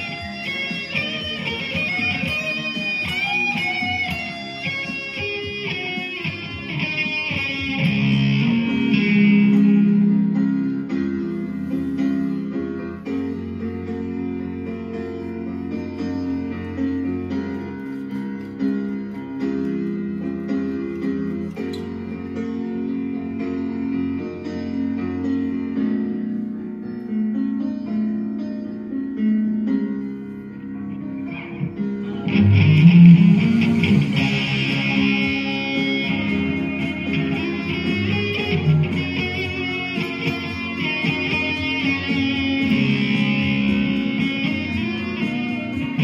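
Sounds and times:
bright lead guitar line: 0.0s - 11.2s, 30.9s - 46.0s
electric guitar rock chords: 0.0s - 11.4s, 30.9s - 46.0s.

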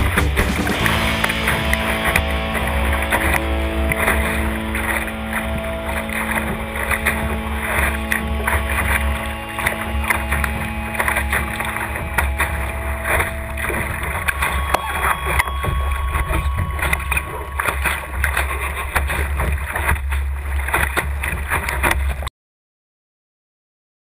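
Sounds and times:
ambient synth music: 0.0s - 19.8s
low rumble: 0.0s - 21.5s
water splashing along boat hull: 0.0s - 22.3s.

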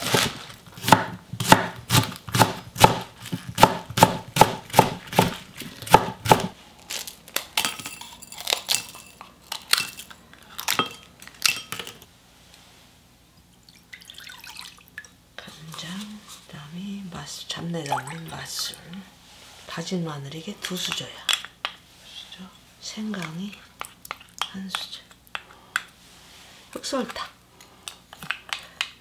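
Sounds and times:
knife chopping on wooden board: 0.0s - 6.5s.

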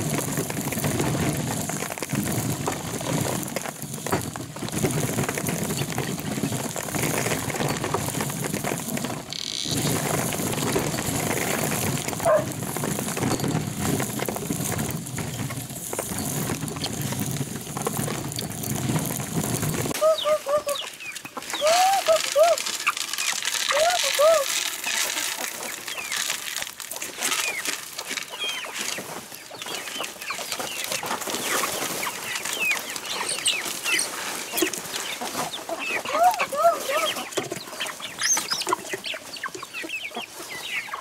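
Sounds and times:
stone mill grinding corn: 0.0s - 20.0s, 21.2s - 29.0s
chickens calling: 2.3s - 15.6s, 19.9s - 41.0s.

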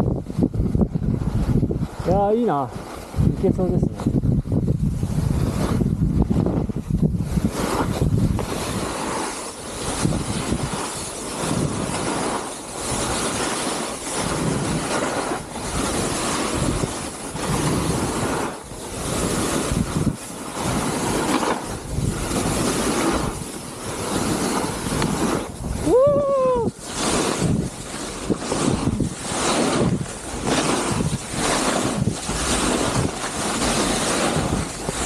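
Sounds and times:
skis scraping through snow: 0.0s - 35.0s
wind buffeting microphone: 0.0s - 35.0s.

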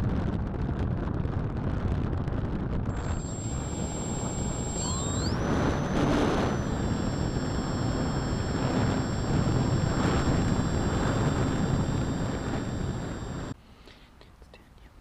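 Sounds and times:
wind rush on microphone: 0.0s - 13.6s
electric motor and propeller whine: 2.9s - 13.6s.

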